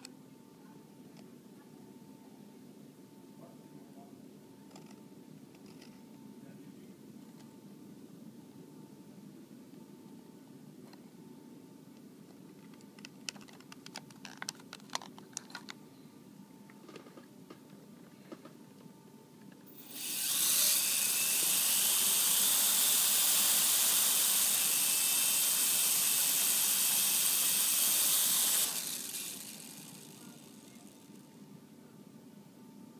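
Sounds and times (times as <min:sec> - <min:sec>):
plastic clicks: 0:12.6 - 0:15.8
toy drone propellers whirring: 0:19.7 - 0:31.3.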